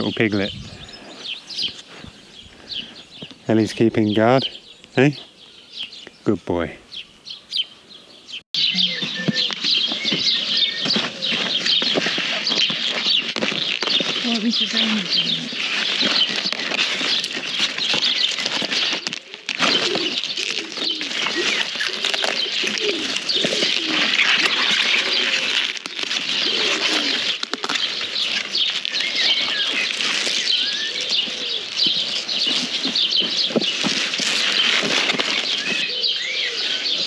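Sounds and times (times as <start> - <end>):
kale leaves snapping and rustling: 9.1 - 37.0.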